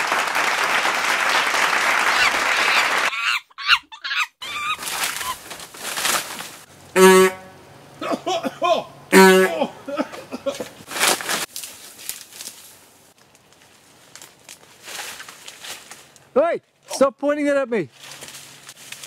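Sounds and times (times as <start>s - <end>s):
applause-like noise: 0.0s - 3.1s
short gliding calls: 7.0s - 7.7s.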